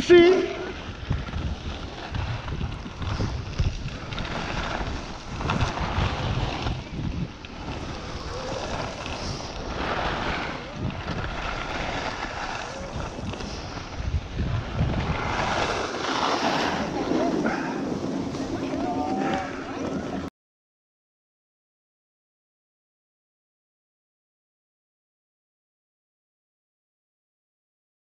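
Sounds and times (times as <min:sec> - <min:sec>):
wind buffeting microphone: 0:00.4 - 0:20.3.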